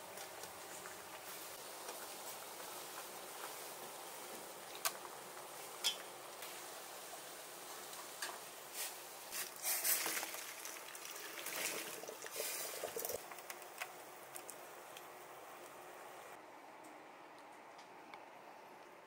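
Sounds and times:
water boiling: 0.0 - 16.4
water pouring into a strainer: 9.5 - 13.2.

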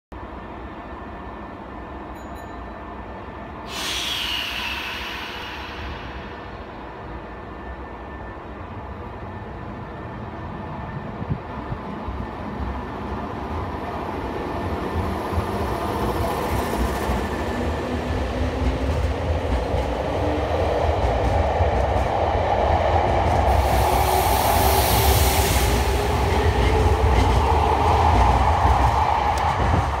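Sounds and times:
burst of hiss: 3.7 - 7.1, 23.6 - 26.6
train wheel rumble: 3.7 - 30.0.

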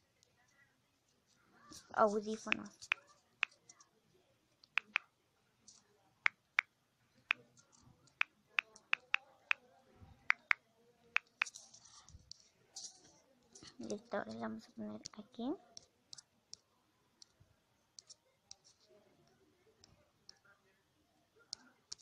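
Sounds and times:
phone keyboard key clicks: 4.7 - 5.0, 8.6 - 9.2.

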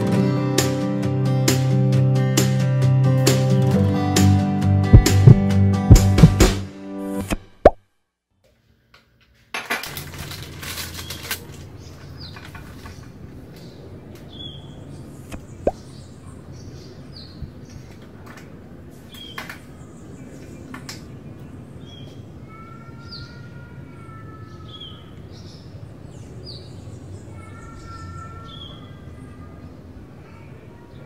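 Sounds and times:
small birds chirping: 11.0 - 18.2, 18.9 - 31.0.

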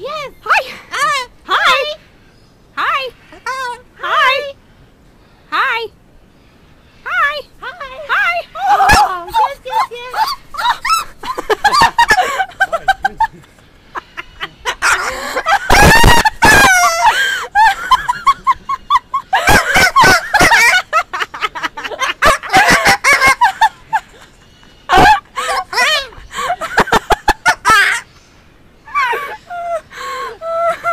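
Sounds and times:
cockatoo squawking and screeching: 8.6 - 12.8, 13.9 - 21.4.

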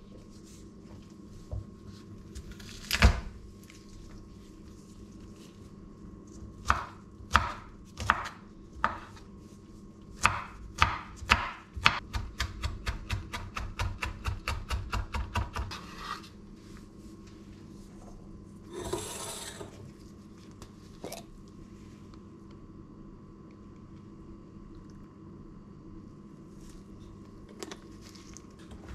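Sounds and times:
knife chopping on cutting board: 6.6 - 9.2, 10.2 - 16.2
knife scraping board: 15.6 - 16.4, 18.7 - 19.9.

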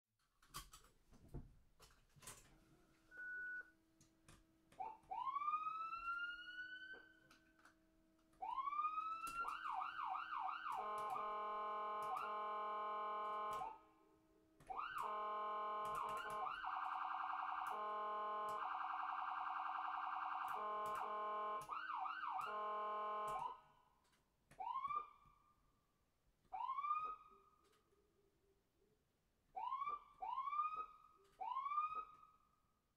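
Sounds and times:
electronic ambulance siren: 4.8 - 7.4, 8.4 - 13.9, 14.7 - 23.7, 24.6 - 25.3, 26.6 - 27.5, 29.6 - 32.4.

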